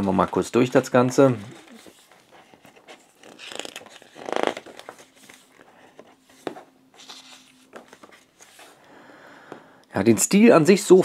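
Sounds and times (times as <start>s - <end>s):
paper rustling: 0.0s - 8.8s
paper pages swishing: 0.2s - 8.8s.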